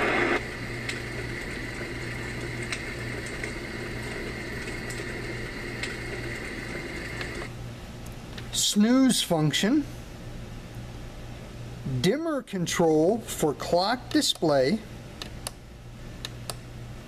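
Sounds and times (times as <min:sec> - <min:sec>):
campfire crackling sound: 0:00.0 - 0:07.5
steady low hum: 0:00.0 - 0:17.0.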